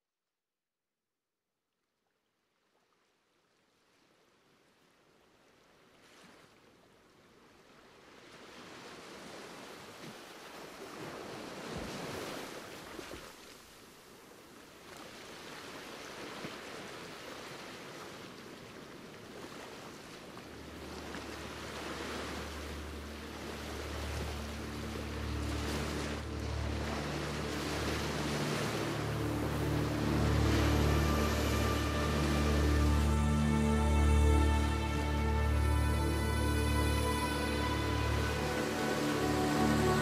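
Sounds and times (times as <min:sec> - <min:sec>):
waves rushing: 0:14.9 - 0:40.0
low sustained music notes: 0:20.5 - 0:40.0.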